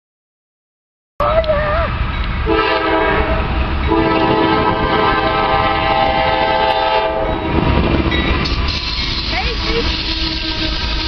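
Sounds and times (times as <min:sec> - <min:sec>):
locomotive air horn: 0:02.5 - 0:07.3, 0:08.7 - 0:11.0.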